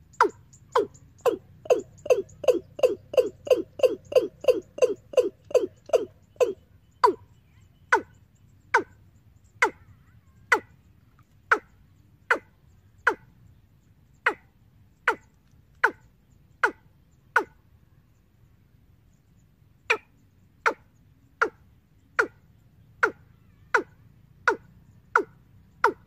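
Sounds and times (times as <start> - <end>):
recorded bird call over loudspeaker: 4.0 - 10.8, 22.5 - 26.0.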